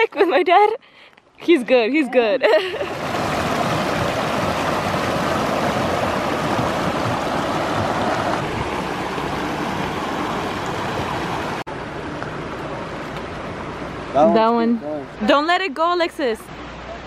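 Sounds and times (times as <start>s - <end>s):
creek rushing over rocks: 2.8s - 11.7s.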